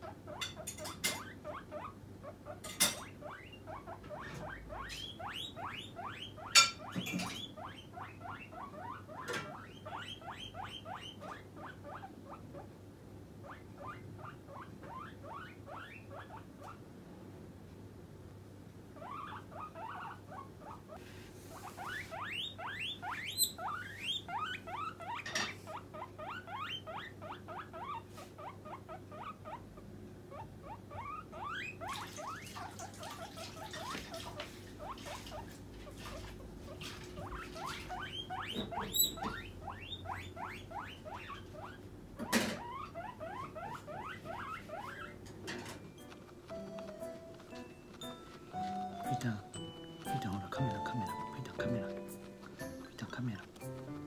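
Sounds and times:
guinea pig squeaking: 0:00.0 - 0:12.8, 0:13.4 - 0:16.8, 0:19.0 - 0:54.0.

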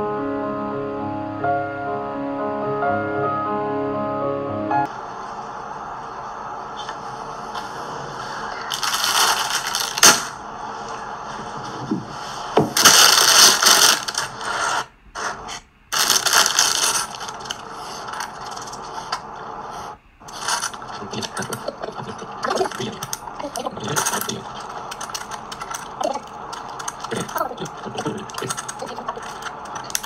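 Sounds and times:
plastic bag rustling: 0:08.4 - 0:12.0, 0:12.6 - 0:14.9, 0:15.9 - 0:19.4, 0:20.2 - 0:30.0
plastic pieces clattering onto table: 0:08.7 - 0:10.3, 0:12.8 - 0:14.3, 0:15.9 - 0:18.8
plastic pieces clicking together: 0:12.8 - 0:14.4, 0:15.9 - 0:18.8, 0:23.9 - 0:30.0.

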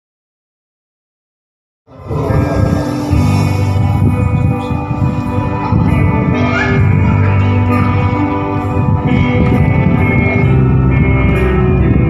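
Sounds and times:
choir singing a hymn: 0:01.9 - 0:05.2.

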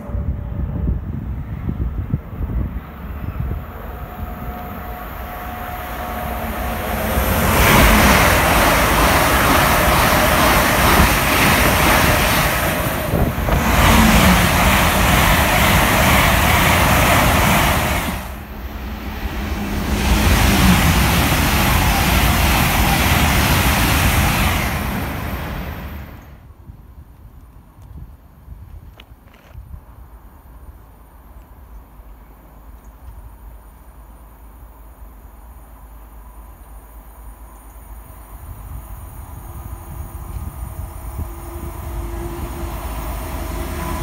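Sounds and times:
train rushing past: 0:00.0 - 0:26.4, 0:37.0 - 0:44.0.

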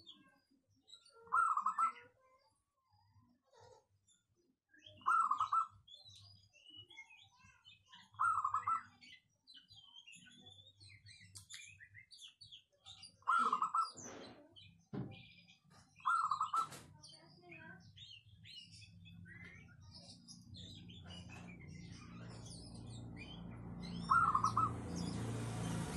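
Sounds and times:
small birds chirping: 0:00.0 - 0:25.9
dove cooing: 0:24.1 - 0:24.7.

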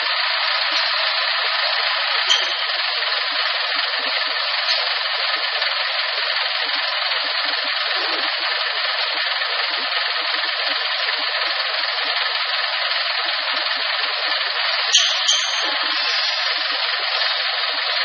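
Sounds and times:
hydraulic system hissing: 0:14.9 - 0:17.4.

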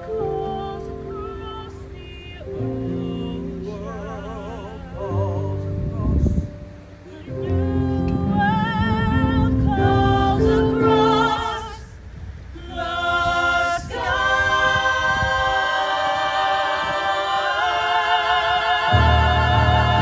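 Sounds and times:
mixed voices singing in harmony: 0:00.0 - 0:20.0.

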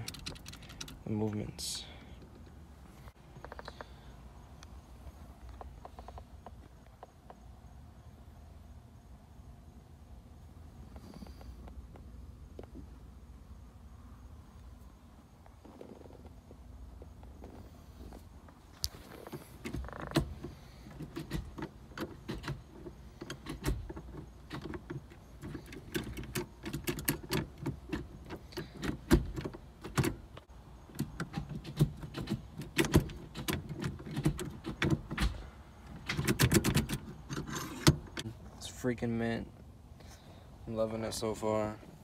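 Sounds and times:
gear lever metallic clicks and clunks: 0:00.0 - 0:01.4, 0:18.8 - 0:38.3.

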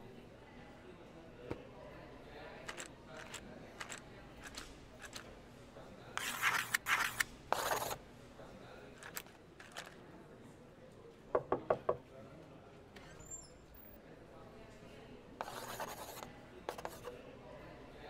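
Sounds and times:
chalk scratching: 0:06.2 - 0:08.0, 0:15.4 - 0:17.1
knocks on a glass door: 0:11.4 - 0:12.0.

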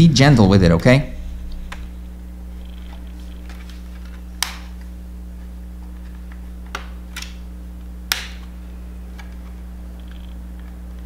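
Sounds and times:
low hum: 0:00.0 - 0:11.0
plastic clips snapping loose: 0:08.1 - 0:08.5.

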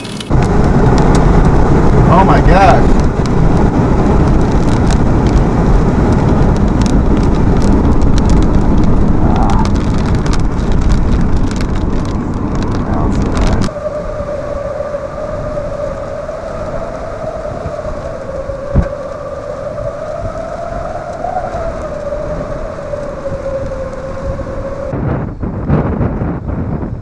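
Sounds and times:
rain and debris on windshield: 0:00.0 - 0:24.9
wind buffeting a vehicle: 0:00.0 - 0:27.0
wavering high tone: 0:13.4 - 0:24.9.

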